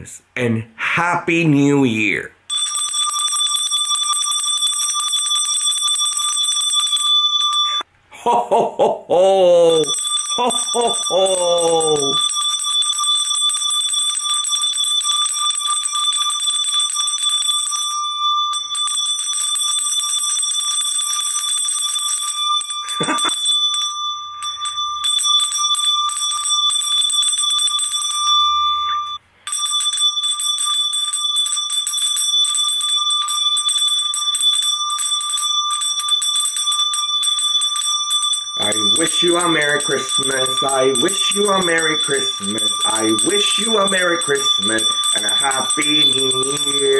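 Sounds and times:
hand bell ringing rapidly: 2.5s - 7.8s, 9.8s - 46.9s.

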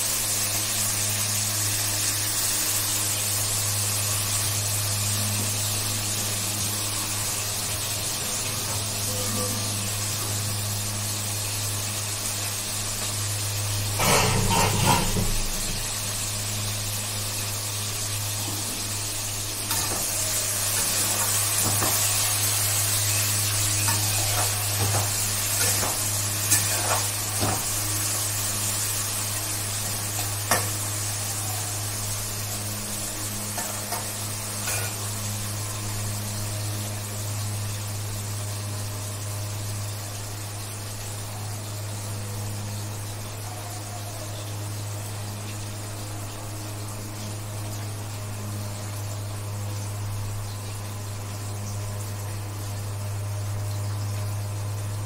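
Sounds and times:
tap water running into sink: 13.9s - 16.0s, 20.8s - 22.0s, 23.8s - 28.0s.

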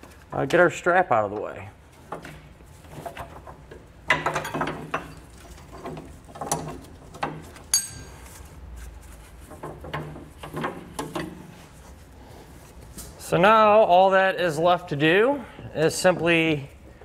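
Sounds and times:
metal hooks clinking and rattling: 4.1s - 8.3s
metallic ping: 7.7s - 8.1s.

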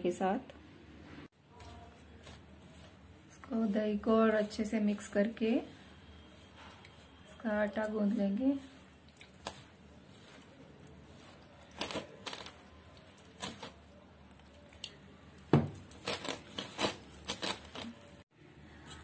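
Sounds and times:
hand squishing dough: 1.4s - 18.2s.

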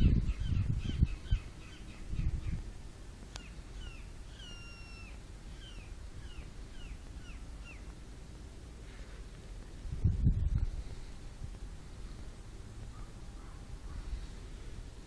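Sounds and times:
low microphone rumble: 0.0s - 3.0s, 5.3s - 15.0s
bird calling downward notes: 3.4s - 7.9s.

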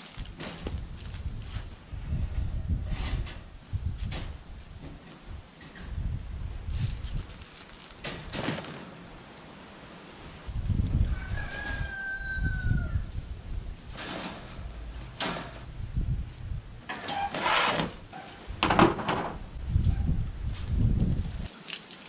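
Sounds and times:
wind buffeting microphone: 0.1s - 7.5s, 10.2s - 16.9s, 17.8s - 21.5s
wire dog crate rattling: 13.9s - 15.6s.

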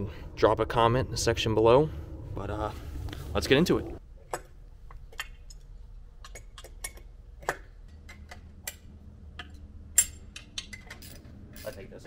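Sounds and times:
sharp metal clicks and taps: 6.2s - 11.1s.

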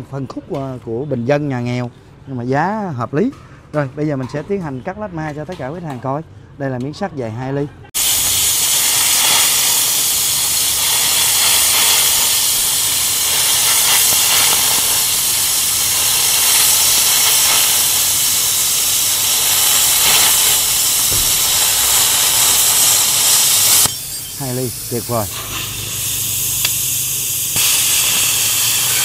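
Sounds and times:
plasma cutter hissing: 8.0s - 29.0s.

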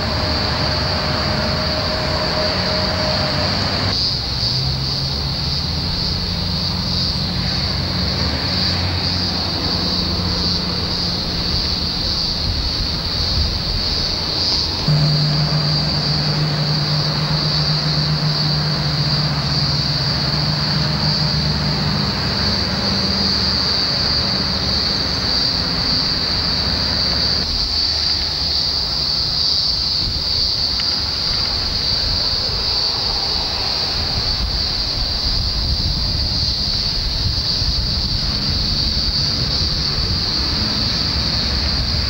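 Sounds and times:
cicada chorus drone: 0.0s - 42.0s
wind on microphone: 8.8s - 18.5s, 29.8s - 42.0s
low steady hum: 14.7s - 20.7s.

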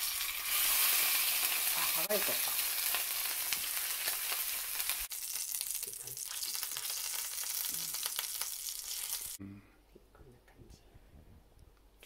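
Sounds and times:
meat sizzling in a frying pan: 0.0s - 9.4s.

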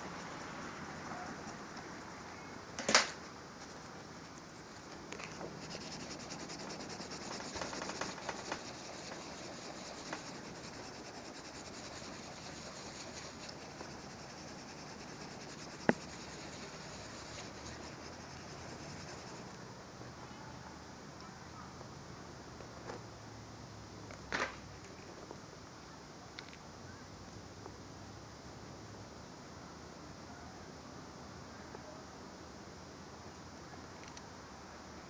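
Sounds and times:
pencil scratching on paper: 5.4s - 19.5s.

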